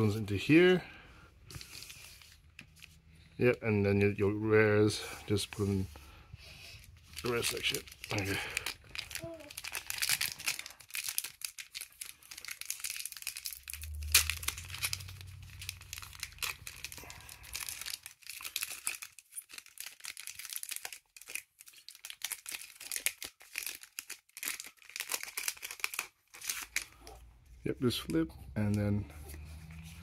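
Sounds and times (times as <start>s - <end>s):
foil wrapper crinkling and tearing: 6.9s - 27.2s.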